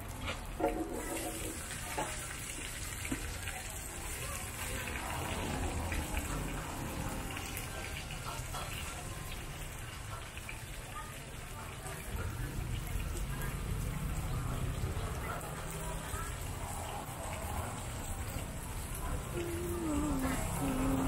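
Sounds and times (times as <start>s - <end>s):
noodles sizzling in a wok: 0.0s - 14.7s.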